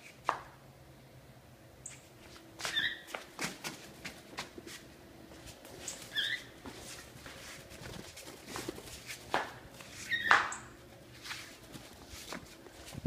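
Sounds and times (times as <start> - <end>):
footsteps on tiled floor: 1.9 - 13.0
cockatiel chirping: 2.7 - 3.0, 6.1 - 6.5, 10.0 - 10.7.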